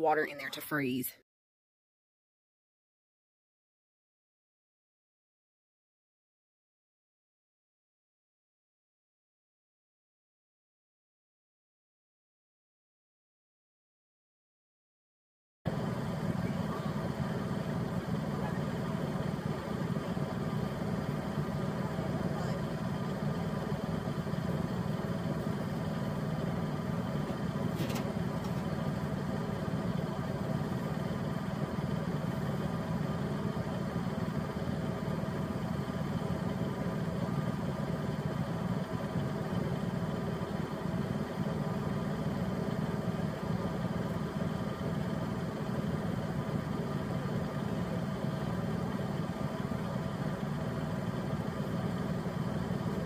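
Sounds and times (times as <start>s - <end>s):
tractor engine idling: 15.7s - 53.0s.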